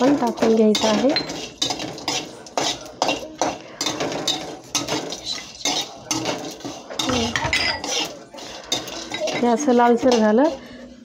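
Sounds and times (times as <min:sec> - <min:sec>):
metal spatula scraping a pan: 0:00.0 - 0:10.9.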